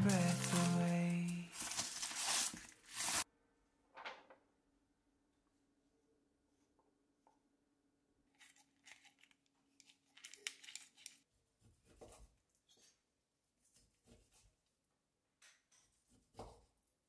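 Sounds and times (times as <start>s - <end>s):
paper leaflet rustling: 0.0s - 3.2s.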